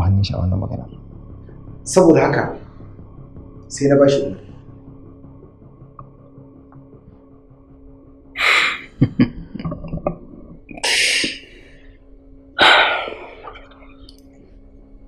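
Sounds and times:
faint steady hum: 0.0s - 15.0s
man breathing sharply: 8.4s - 8.9s.

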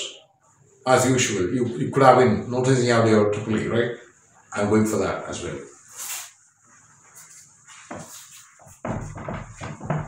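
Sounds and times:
cloth wiping a whiteboard: 5.6s - 10.0s.

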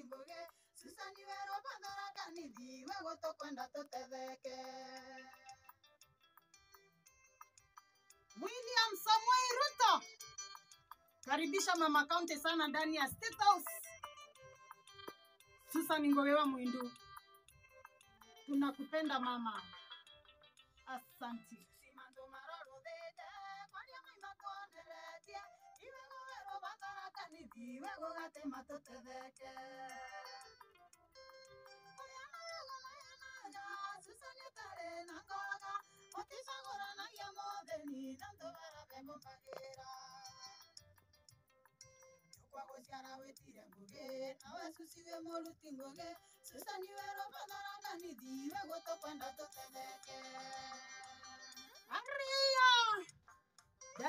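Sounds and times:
woman singing: 0.0s - 5.6s, 8.4s - 10.1s, 11.2s - 14.0s, 15.6s - 17.0s, 18.4s - 19.8s, 20.9s - 30.6s, 31.7s - 40.6s, 42.6s - 53.2s
song with vocals over beat: 0.0s - 5.9s, 10.9s - 41.0s, 42.0s - 54.0s.

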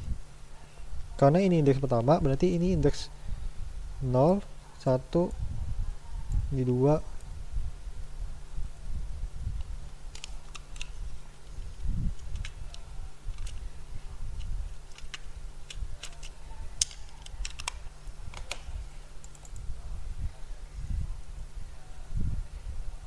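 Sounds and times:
steady low hum: 0.0s - 23.0s
keyboard and mouse clicks: 10.1s - 11.0s, 14.9s - 19.6s.

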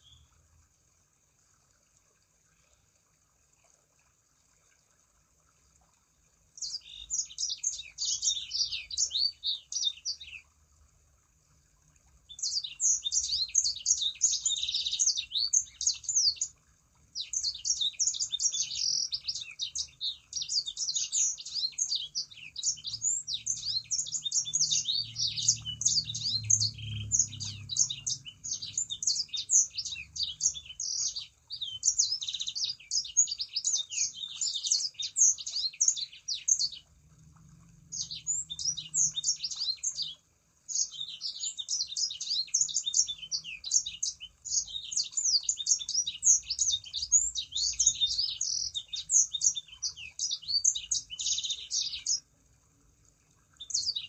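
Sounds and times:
songbird chattering chirps: 12.3s - 16.5s, 17.2s - 36.9s, 38.0s - 52.2s.

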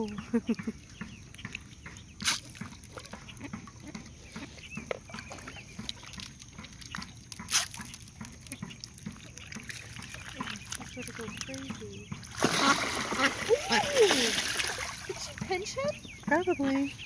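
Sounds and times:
ducks peeping and chirping: 0.0s - 17.0s
feed spattering onto water: 12.3s - 15.5s.

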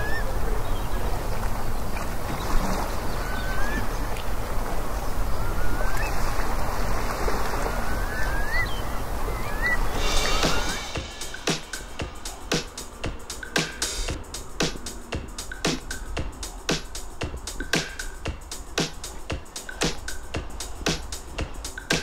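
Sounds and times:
rising whistle-like chirps: 7.7s - 18.2s.

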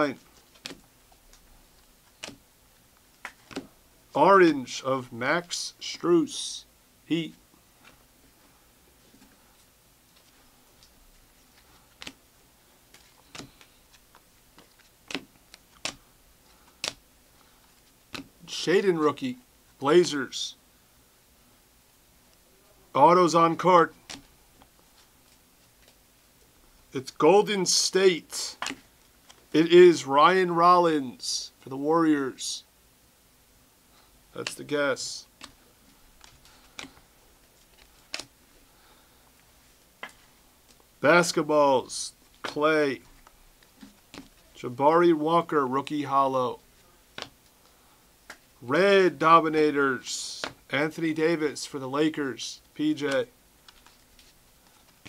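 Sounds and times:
card rustling: 0.0s - 2.4s, 3.1s - 3.8s, 9.0s - 19.2s, 23.1s - 26.0s, 28.5s - 29.6s, 34.4s - 44.6s, 52.8s - 55.0s
cards snapping with clicks: 0.5s - 1.4s, 2.2s - 2.4s, 3.2s - 3.7s, 12.0s - 12.2s, 12.9s - 14.0s, 14.6s - 16.0s, 16.6s - 17.0s, 18.1s - 18.3s, 28.6s - 29.4s, 37.7s - 38.3s.

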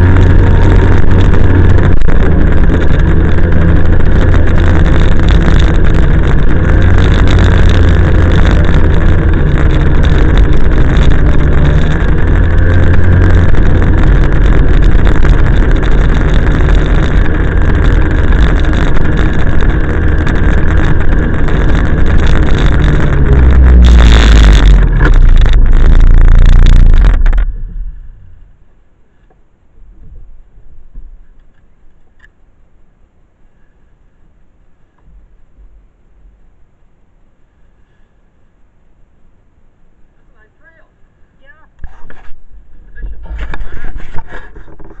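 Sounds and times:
snowmobile engine running: 0.0s - 28.5s, 42.7s - 45.0s
wind rumble on microphone: 0.0s - 28.7s, 29.7s - 32.3s, 41.5s - 45.0s.

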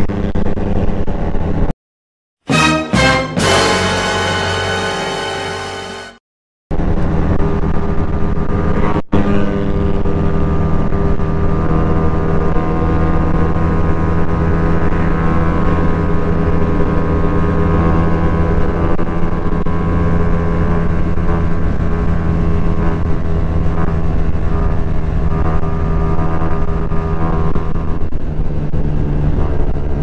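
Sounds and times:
motorcycle engine cruising: 6.7s - 30.0s.

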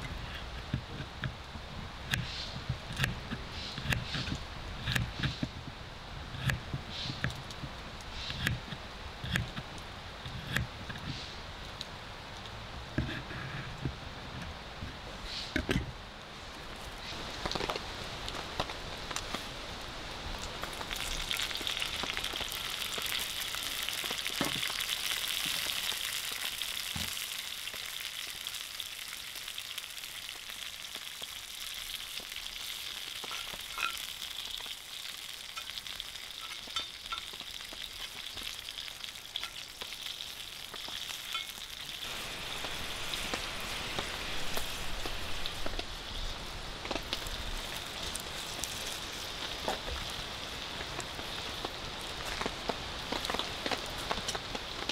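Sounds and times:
food sizzling in oil: 20.3s - 52.4s.

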